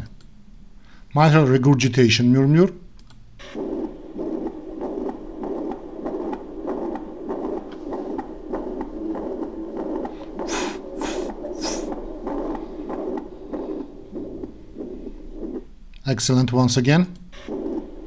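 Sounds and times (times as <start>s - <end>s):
short scratchy noises: 3.4s - 15.7s
heart murmur whooshing: 3.4s - 15.8s, 17.3s - 18.0s.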